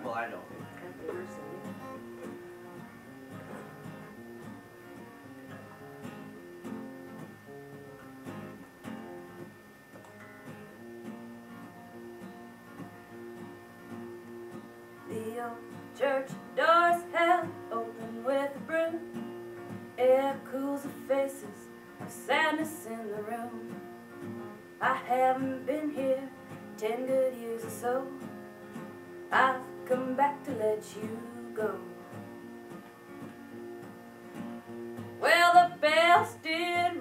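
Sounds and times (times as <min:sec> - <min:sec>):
acoustic guitar playing: 0:00.0 - 0:37.0
woman singing: 0:15.1 - 0:19.2, 0:20.0 - 0:23.8, 0:24.8 - 0:28.4, 0:29.3 - 0:32.1, 0:35.2 - 0:37.0.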